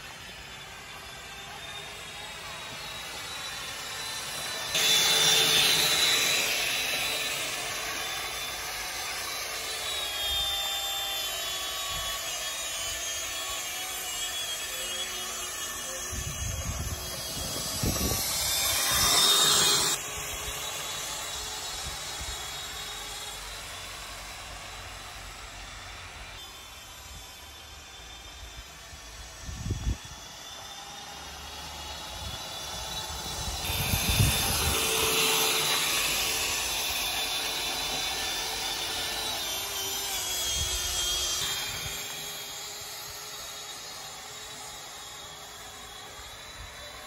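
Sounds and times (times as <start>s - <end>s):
scooter motor whining: 0.0s - 23.4s, 29.3s - 46.8s.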